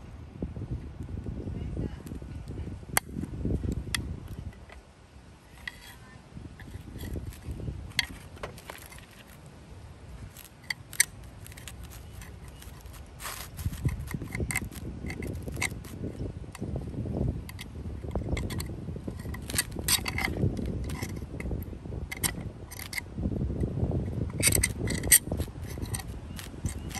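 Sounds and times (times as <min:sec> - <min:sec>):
screwdriver scraping metal: 0:05.4 - 0:06.0, 0:06.6 - 0:09.4, 0:10.3 - 0:16.8, 0:17.4 - 0:23.1, 0:24.2 - 0:26.9
handling bumps: 0:05.4 - 0:09.5, 0:10.1 - 0:23.0, 0:24.1 - 0:26.9
screwdriver metallic clicks: 0:10.4 - 0:16.7, 0:17.5 - 0:23.0, 0:24.3 - 0:26.9.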